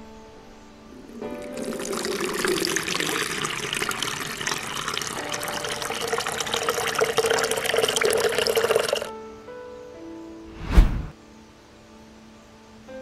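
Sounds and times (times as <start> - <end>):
water pouring into pebble basin: 0.9 - 9.1.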